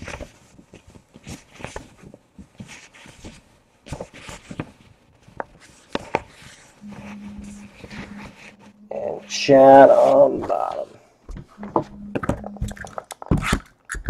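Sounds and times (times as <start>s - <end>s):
paper rustling and crinkling: 0.0s - 8.8s.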